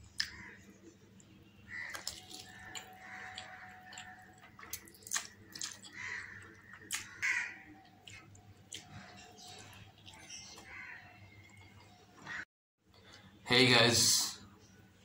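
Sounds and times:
lip smacks: 0:04.6 - 0:06.0.

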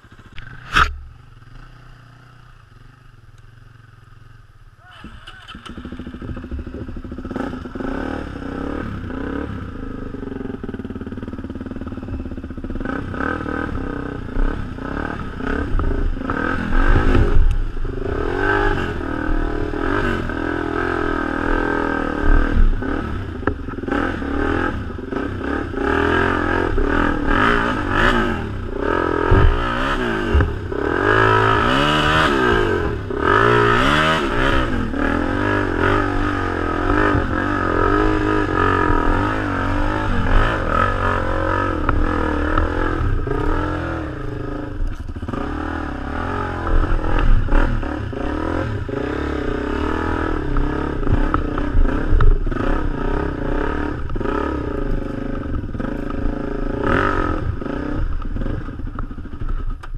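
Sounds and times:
motorcycle engine revving: 0:00.0 - 0:59.9
knocks and clatter from motorcycle: 0:05.6 - 0:07.9, 0:22.2 - 0:25.6, 0:29.2 - 0:30.8, 0:35.8 - 0:45.5, 0:50.2 - 0:59.9.

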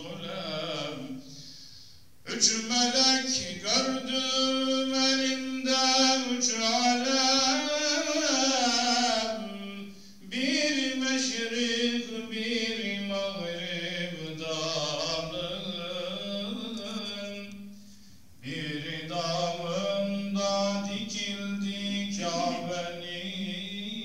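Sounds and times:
man chanting solo: 0:18.5 - 0:23.8.

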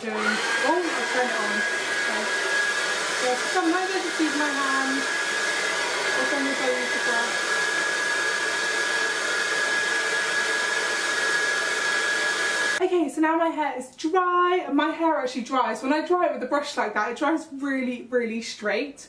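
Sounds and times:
hair dryer running: 0:00.0 - 0:12.8.

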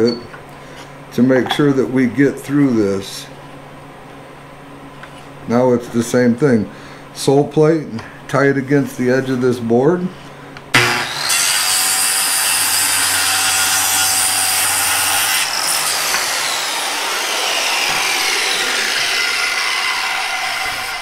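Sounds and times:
circular saw cutting board: 0:10.8 - 0:21.0
saw blade whine spinning down: 0:15.5 - 0:21.0.

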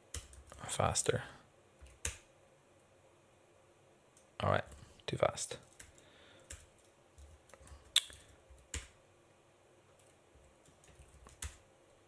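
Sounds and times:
computer keyboard key presses: 0:00.0 - 0:00.6, 0:01.8 - 0:02.3, 0:05.7 - 0:09.0, 0:10.0 - 0:11.6.

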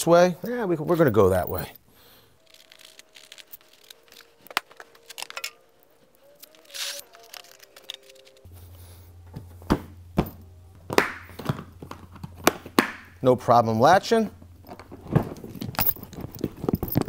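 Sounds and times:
quiet background music: 0:00.0 - 0:17.0
tools clicking into case: 0:02.4 - 0:05.6, 0:06.4 - 0:08.4.

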